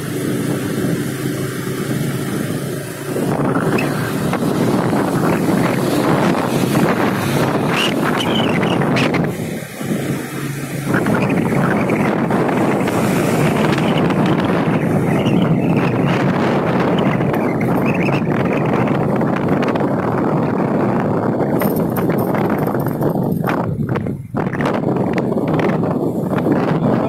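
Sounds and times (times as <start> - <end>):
motorcycle engine and road hum: 0.0 - 27.0
wind rushing over microphone: 0.0 - 27.0.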